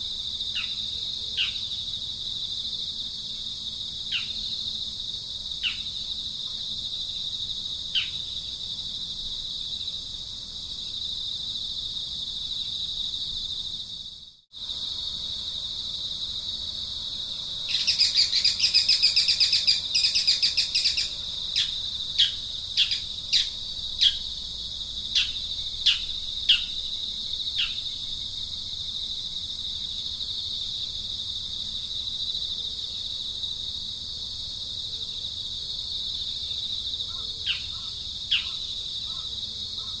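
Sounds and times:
insect chorus drone: 0.0 - 40.0
fast pulsing chirr: 17.6 - 24.4.

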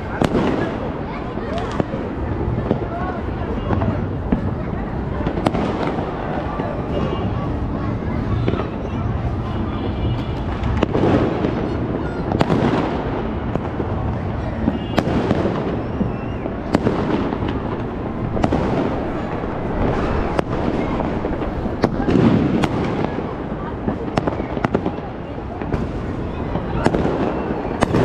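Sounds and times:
distant explosions and crackle: 0.0 - 28.0
firework bangs: 0.0 - 28.0.

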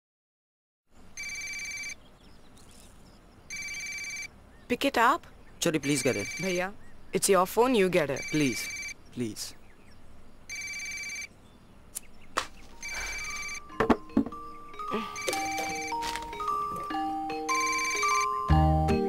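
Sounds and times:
phone ringing: 1.2 - 2.0, 3.5 - 4.3, 5.8 - 6.7, 8.0 - 9.0, 10.5 - 11.3, 12.7 - 18.8
simple single-note melody: 12.8 - 19.0.

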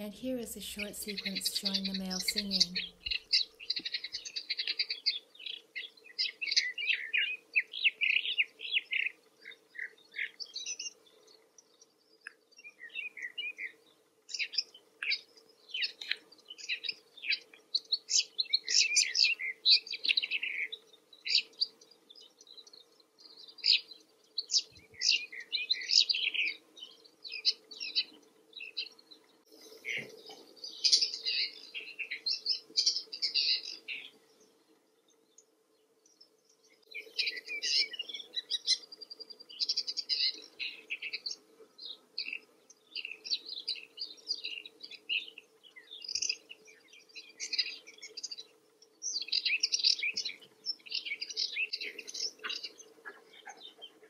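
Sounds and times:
bird chirping and warbling: 0.0 - 4.8.

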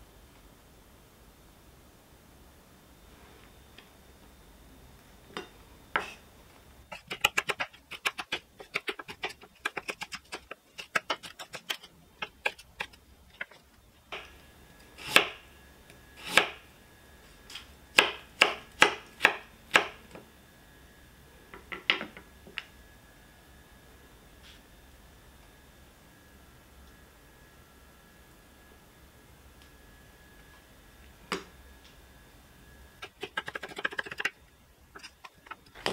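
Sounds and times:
knife chopping on wooden board: 18.0 - 20.0.

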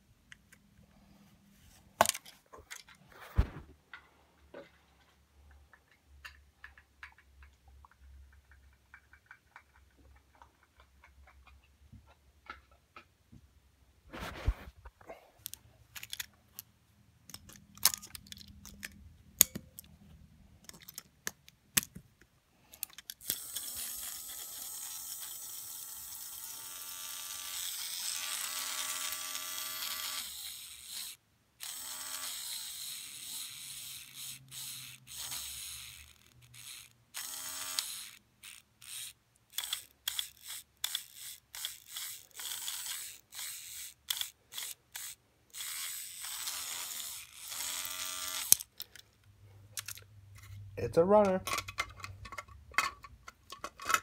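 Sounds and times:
toy train motor whirring: 15.4 - 16.3, 22.8 - 49.2.

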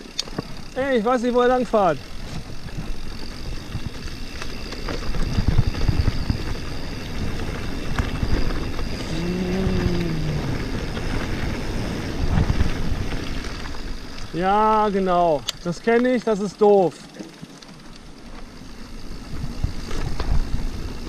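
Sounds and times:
wind buffeting microphone: 2.0 - 15.4, 19.0 - 21.0
tyres rumbling over ground: 4.9 - 15.8
low tone dipping in pitch: 8.9 - 11.4.

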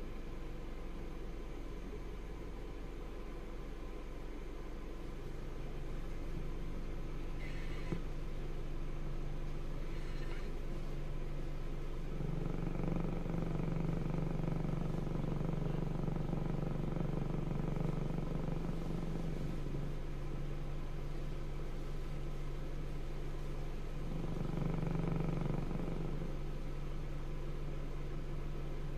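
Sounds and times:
car engine idling: 0.0 - 28.9.

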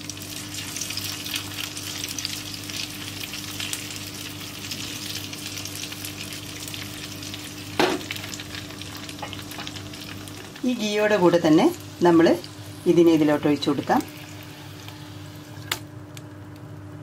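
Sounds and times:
food sizzling in hot ghee: 0.0 - 15.8.

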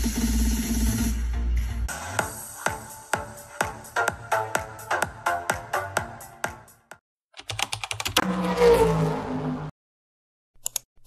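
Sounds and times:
electronic dance music: 0.0 - 7.0
sharp clicks: 10.6 - 10.9.

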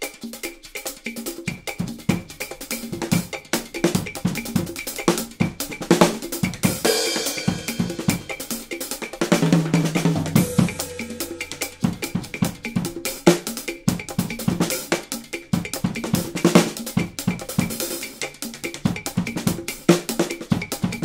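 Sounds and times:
damped snare drum strokes: 0.0 - 21.0
sharp clicky drum hits: 3.8 - 17.7.

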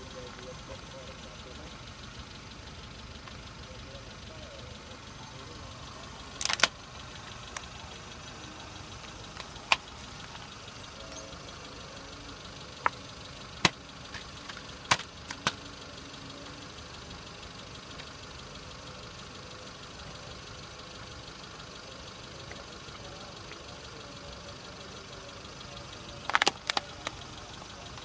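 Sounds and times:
car engine idling: 0.0 - 28.0
plastic cases cracking and clacking: 6.3 - 7.7, 13.6 - 15.6, 26.2 - 27.2.

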